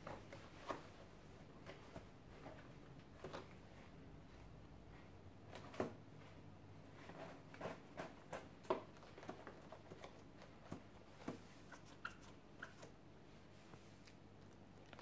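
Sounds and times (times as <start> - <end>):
puppet fabric ticks and rustles: 5.5 - 13.0.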